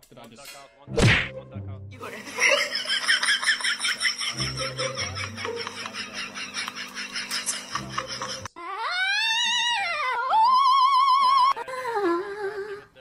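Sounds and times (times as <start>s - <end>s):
rhythmic laughter-like sound: 2.0s - 8.5s.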